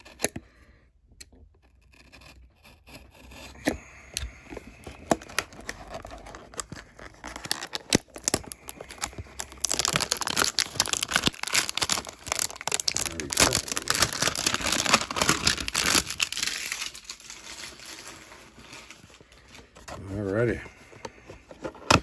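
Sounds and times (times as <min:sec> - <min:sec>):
packaging tearing and crinkling: 0:04.5 - 0:19.2.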